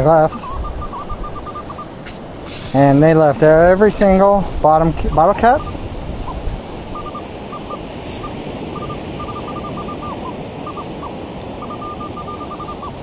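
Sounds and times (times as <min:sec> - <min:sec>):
surf: 0:00.0 - 0:13.0
wind noise: 0:00.0 - 0:13.0
metal detector short high beeps: 0:00.3 - 0:01.8, 0:05.1 - 0:05.8, 0:07.0 - 0:13.0.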